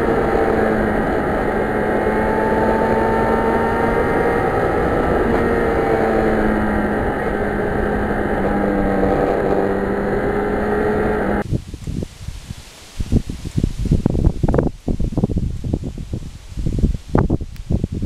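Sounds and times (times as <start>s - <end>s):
motorcycle engine cruising: 0.0s - 11.4s
wind rush on microphone: 0.0s - 18.0s.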